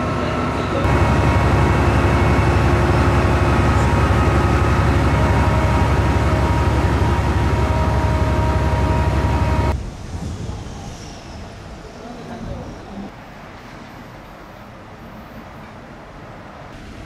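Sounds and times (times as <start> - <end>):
locomotive engine throbbing: 0.0 - 9.8
steady whining tones: 0.8 - 11.9.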